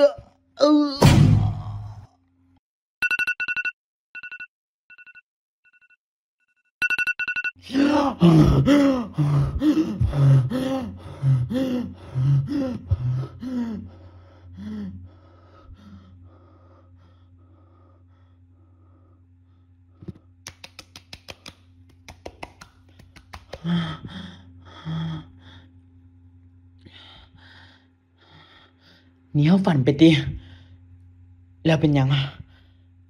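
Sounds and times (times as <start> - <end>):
thump: 1.0 - 1.6
low hum: 7.6 - 20.4, 21.6 - 33.0.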